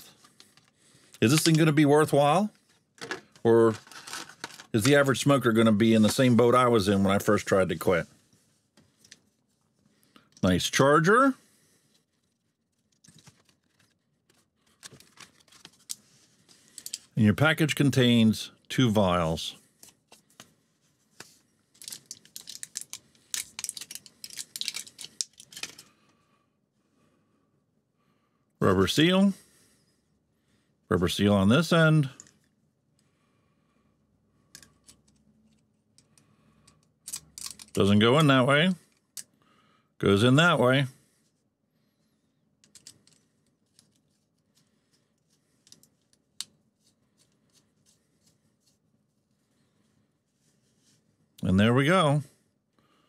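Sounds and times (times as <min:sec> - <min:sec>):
blister pack crinkling and tearing: 0:21.8 - 0:25.8.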